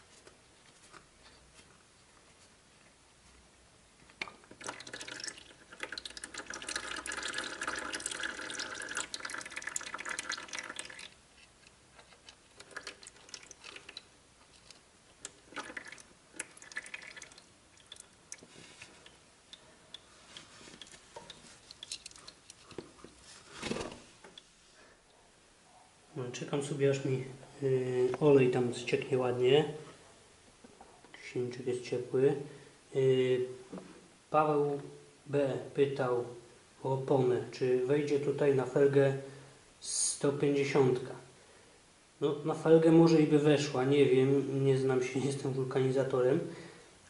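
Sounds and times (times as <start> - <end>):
oil dripping: 4.3 - 11.2, 12.6 - 23.1
oil pouring in a stream: 4.4 - 11.2, 12.5 - 19.2.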